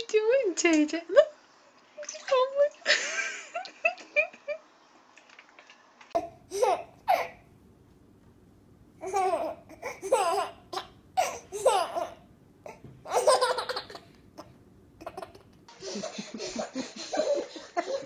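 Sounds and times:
baby laughing: 6.2 - 7.4, 9.0 - 18.0.

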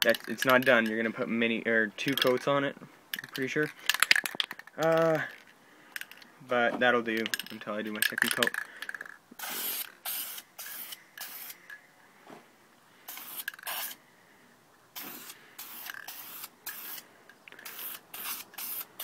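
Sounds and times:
spray can hissing: 9.4 - 11.6, 13.1 - 14.0, 15.0 - 17.0, 17.6 - 19.0.

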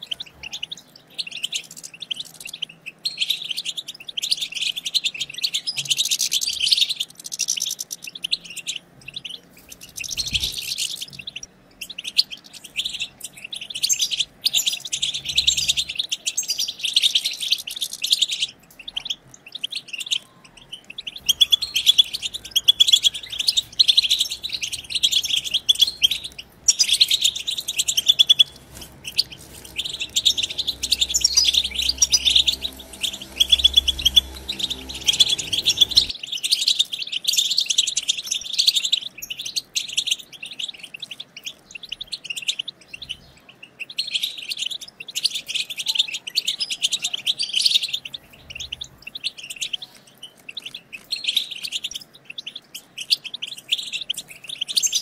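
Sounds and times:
goldfinches twittering: 20.8 - 36.1.

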